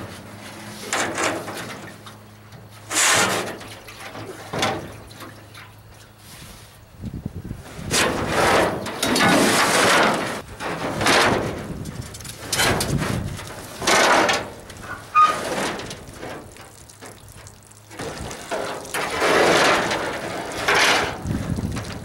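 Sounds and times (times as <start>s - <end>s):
sheet metal scraping and clanging: 0.0s - 2.0s, 2.8s - 5.0s, 7.9s - 16.4s, 18.5s - 21.3s.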